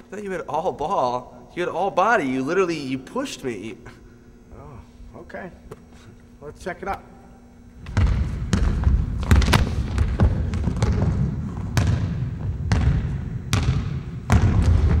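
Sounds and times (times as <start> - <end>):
basketball bouncing on wooden floor: 7.8 - 15.0.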